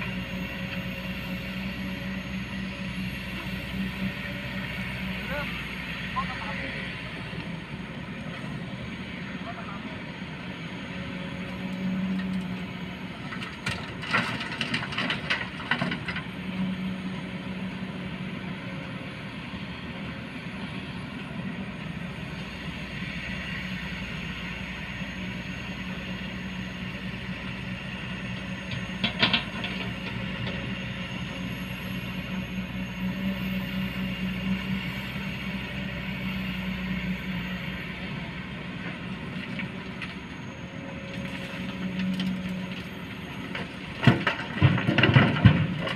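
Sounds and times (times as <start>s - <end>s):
excavator diesel engine running: 0.0s - 45.9s
soil and rocks clattering: 13.2s - 16.3s, 41.2s - 45.9s.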